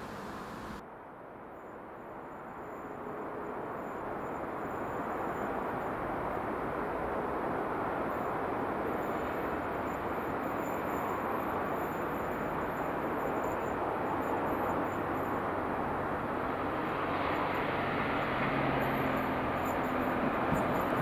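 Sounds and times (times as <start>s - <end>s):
train rumble: 0.0s - 0.8s, 14.0s - 21.0s.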